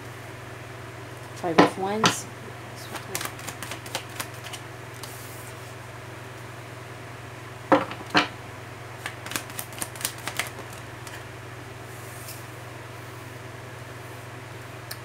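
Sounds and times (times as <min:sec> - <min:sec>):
cards flicking and clicking: 0:02.8 - 0:05.2, 0:09.0 - 0:11.2
deck of cards slapping: 0:02.8 - 0:05.2, 0:09.0 - 0:11.2.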